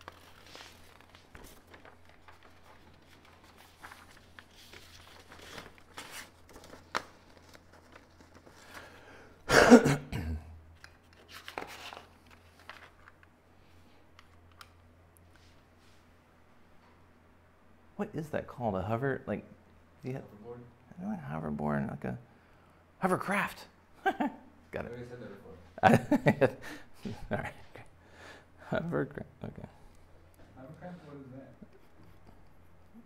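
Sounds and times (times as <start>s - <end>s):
paper rustling and sliding: 0.0s - 9.0s, 10.8s - 14.6s.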